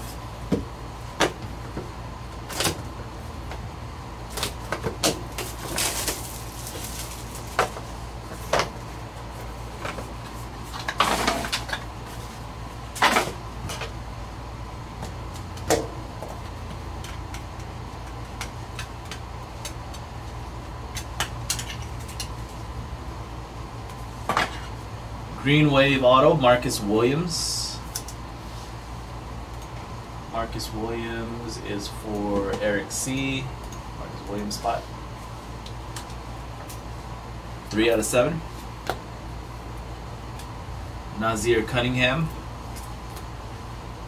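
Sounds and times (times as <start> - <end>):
steady low hum: 0.0 - 44.0
plastic wrap crinkling: 5.4 - 7.6.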